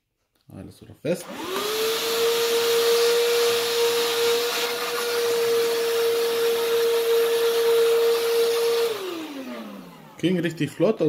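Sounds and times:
handheld vacuum cleaner whining: 0:01.2 - 0:11.0
vacuum motor winding down: 0:01.2 - 0:11.0.

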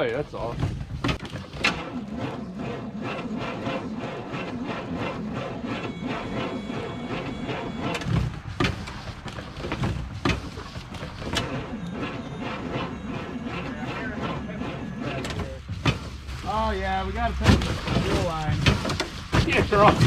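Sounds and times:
truck engine cranking slowly: 0:00.0 - 0:20.0
sharp engine knocks: 0:17.2 - 0:20.0.

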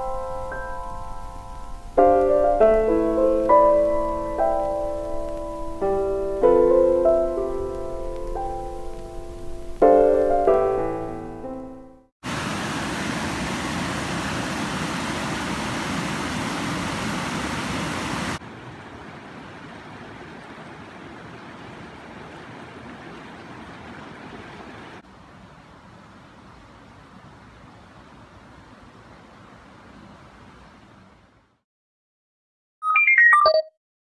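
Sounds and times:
piano notes: 0:00.0 - 0:12.1.

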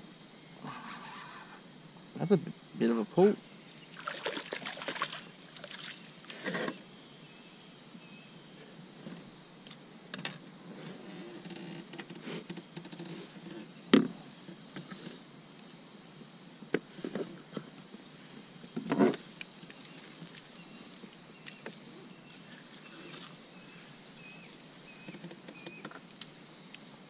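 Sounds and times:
handling clicks and rustles: 0:18.7 - 0:26.9.

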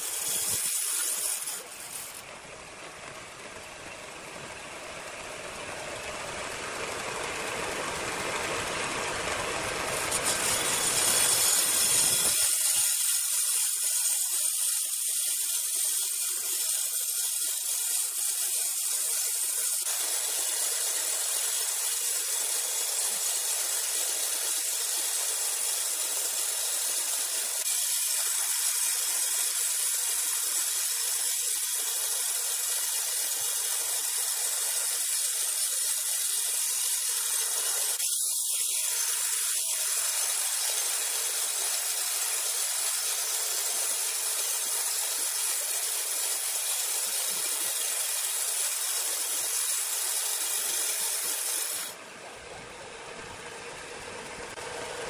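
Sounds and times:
saw blade cutting log: 0:00.0 - 0:02.3, 0:09.7 - 0:52.0
low machine sound: 0:52.0 - 0:55.0.

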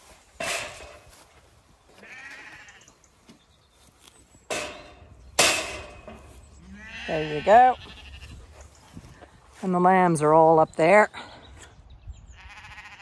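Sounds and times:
ewes bleating: 0:01.9 - 0:03.0, 0:06.6 - 0:09.2, 0:12.2 - 0:13.0.

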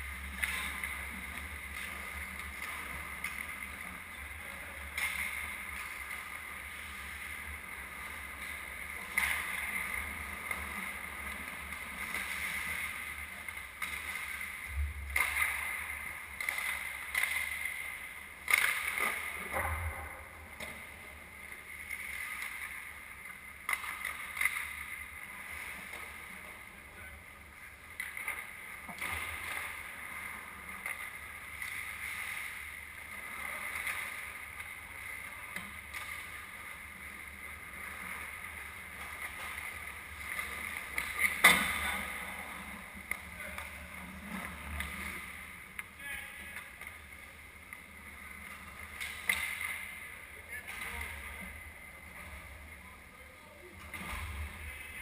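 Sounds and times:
skates scraping ice: 0:00.0 - 0:55.0
hockey sticks clacking on puck: 0:04.9 - 0:06.3, 0:15.1 - 0:20.9, 0:23.6 - 0:25.0, 0:48.9 - 0:50.0.

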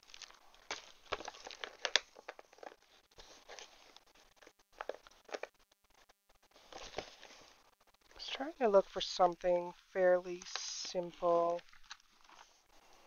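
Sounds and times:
plastic sleeve crinkling: 0:00.0 - 0:08.8, 0:10.3 - 0:13.0
paper rustling: 0:00.2 - 0:07.6.

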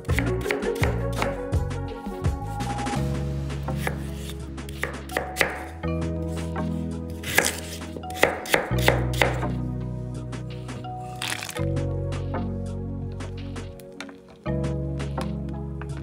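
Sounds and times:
knife chopping on wooden board: 0:03.8 - 0:05.7, 0:07.2 - 0:09.5.

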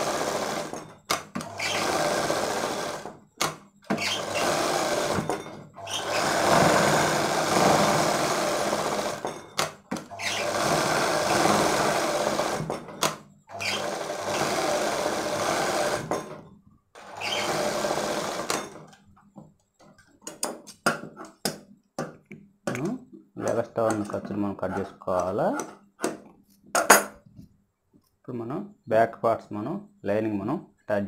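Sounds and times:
sewing machine stitching: 0:00.0 - 0:16.4, 0:17.0 - 0:19.0, 0:23.4 - 0:26.2.

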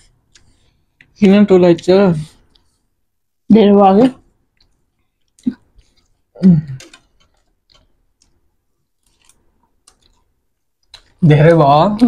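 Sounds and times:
chewing clicks: 0:04.5 - 0:08.4, 0:09.0 - 0:11.2.

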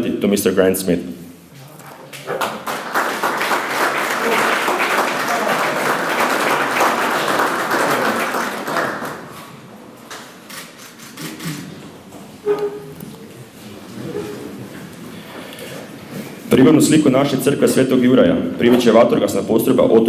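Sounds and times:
audience applauding: 0:02.2 - 0:09.5.

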